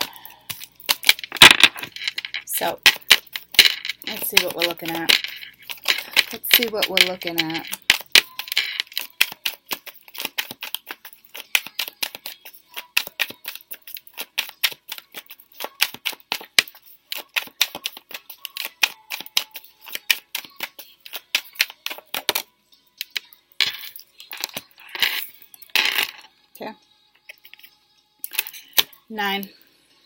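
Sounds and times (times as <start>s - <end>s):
cards being shuffled: 0.0s - 26.2s.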